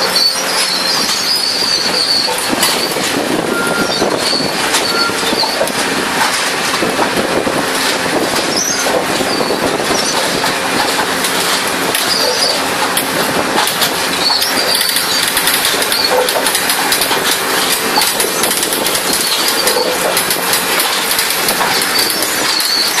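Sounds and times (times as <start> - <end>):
short high squeals: 0.0 - 5.6, 8.4 - 10.4, 12.0 - 12.7, 14.0 - 16.4, 21.7 - 23.0
mechanical clatter of metal clicks: 10.0 - 23.0.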